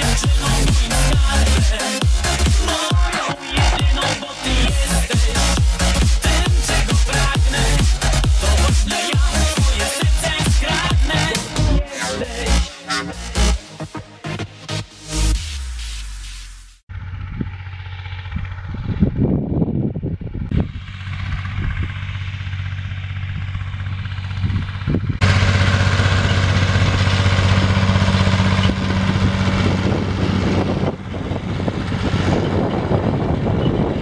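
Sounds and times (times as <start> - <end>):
tractor diesel engine running: 0.0 - 14.0, 16.9 - 34.0
wind gusting on microphone: 18.2 - 22.2, 24.0 - 34.0.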